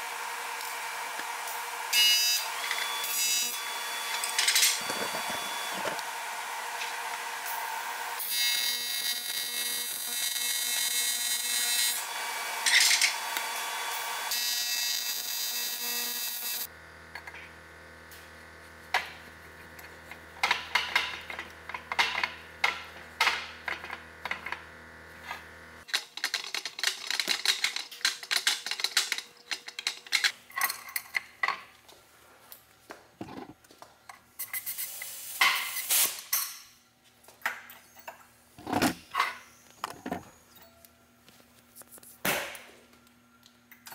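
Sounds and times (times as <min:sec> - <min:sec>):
welding arc buzzing hiss: 0:00.0 - 0:16.7, 0:34.4 - 0:36.5.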